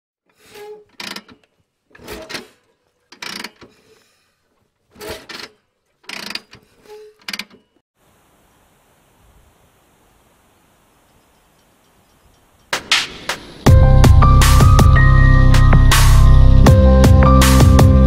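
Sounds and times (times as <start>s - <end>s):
mechanical clanks and ratcheting: 0.3s - 7.8s.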